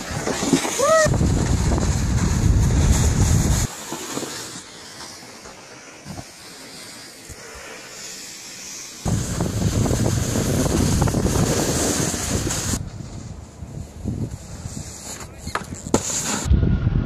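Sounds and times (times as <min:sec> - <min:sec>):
wind rushing over microphone: 0:00.0 - 0:03.7, 0:09.0 - 0:17.0
snowboards sliding on snow: 0:00.0 - 0:17.0.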